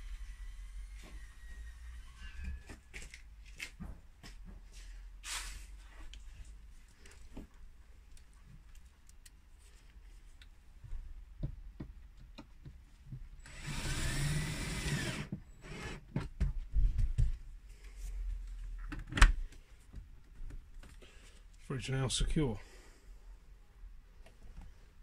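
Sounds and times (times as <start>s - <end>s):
power drill whining: 13.4s - 16.0s.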